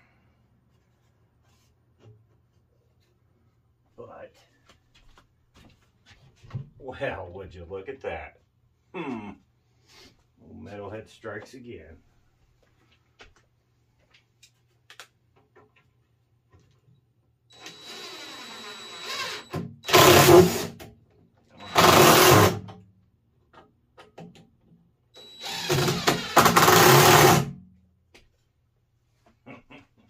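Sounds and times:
power drill whining: 17.5s - 20.8s, 21.5s - 22.6s, 25.2s - 27.5s.

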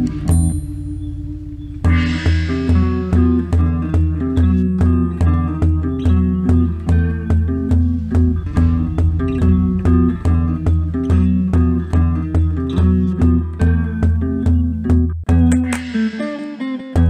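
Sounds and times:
pulsing bass line: 0.0s - 16.2s
plucked guitar: 0.0s - 17.0s
steady beat: 0.0s - 17.0s.

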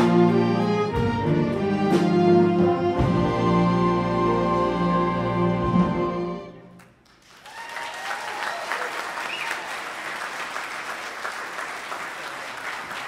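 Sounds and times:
audience applauding: 6.8s - 13.0s
audience cheering: 7.2s - 13.0s.

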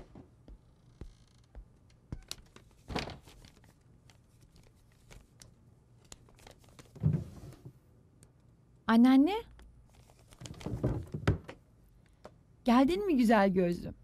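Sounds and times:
soft footsteps: 0.0s - 3.6s
paper crinkling and rustling: 2.3s - 7.1s, 9.9s - 11.1s.

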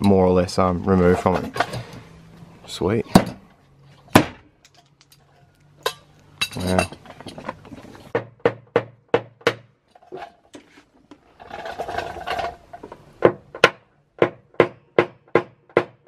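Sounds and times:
tool tapping on car metal: 13.2s - 16.0s.

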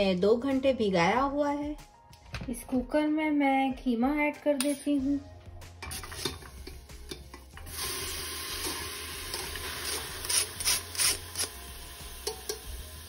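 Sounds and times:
metal strainer scraping pot rim: 5.8s - 6.8s, 8.6s - 11.6s.

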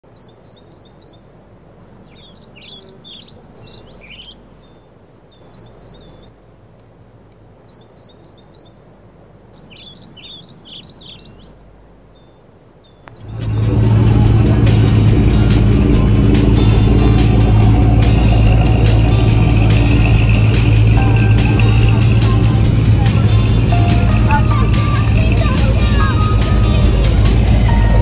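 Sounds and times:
birds chirping: 0.0s - 28.0s
bird warbling: 2.1s - 6.7s, 9.6s - 28.0s
low background rumble: 13.2s - 28.0s.

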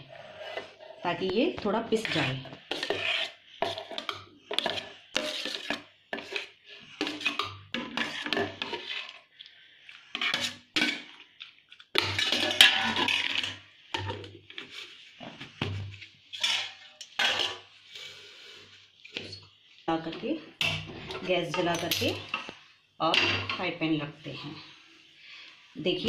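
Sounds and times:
steel spoon scraping a plate: 2.0s - 9.2s.

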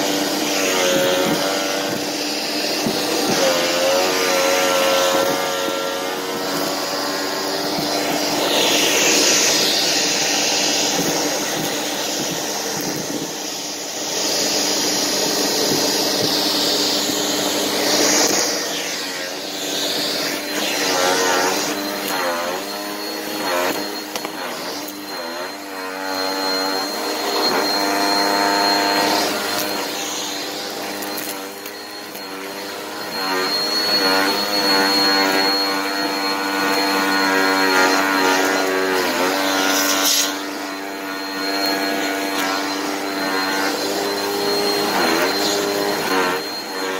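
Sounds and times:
dirt sucked up vacuum nozzle: 0.0s - 46.9s
vacuum cleaner motor whining: 0.0s - 46.9s
thin high whistle: 6.6s - 13.9s, 17.7s - 46.9s.

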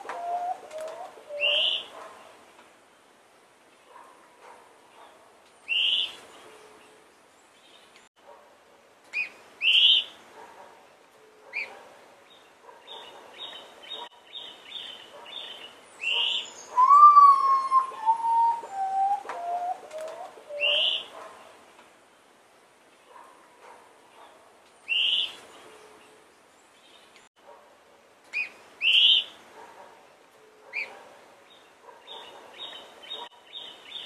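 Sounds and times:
small birds chirping: 12.3s - 21.6s, 31.5s - 34.0s
bird's mournful whistled notes: 16.4s - 19.8s.

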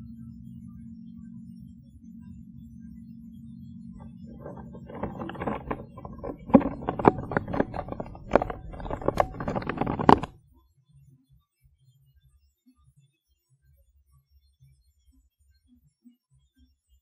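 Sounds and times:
microphone handling noise: 4.0s - 10.4s.

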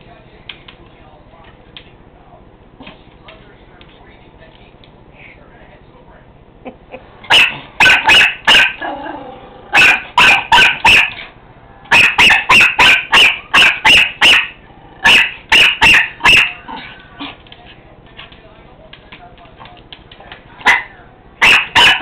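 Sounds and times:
small dog barking: 7.3s - 8.9s, 9.7s - 11.3s, 11.9s - 17.4s, 20.6s - 22.0s.

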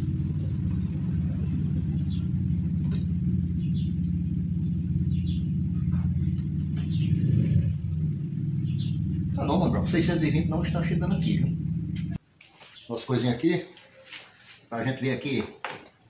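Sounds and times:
low mechanical hum: 0.0s - 12.2s.

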